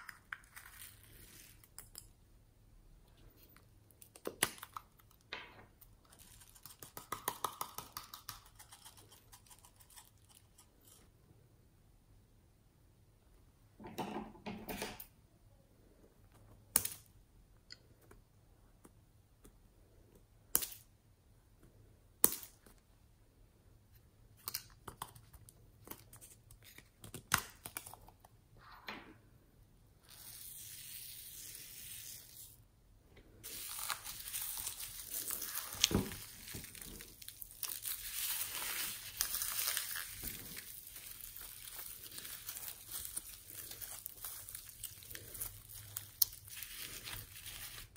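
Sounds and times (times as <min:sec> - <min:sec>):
hands squeezing crackling slime: 0:33.4 - 0:47.9.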